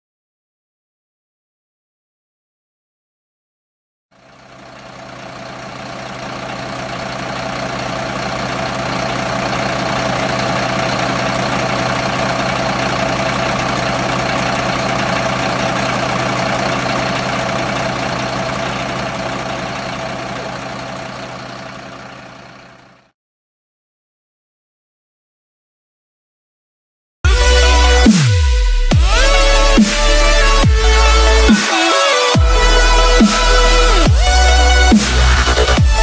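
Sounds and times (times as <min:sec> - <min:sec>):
vehicle engine idling: 0:04.2 - 0:23.1, 0:27.3 - 0:36.0.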